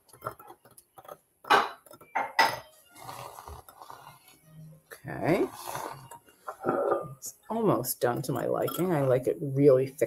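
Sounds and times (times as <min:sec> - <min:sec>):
milk frother whirring: 0:03.0 - 0:04.4, 0:05.3 - 0:06.3.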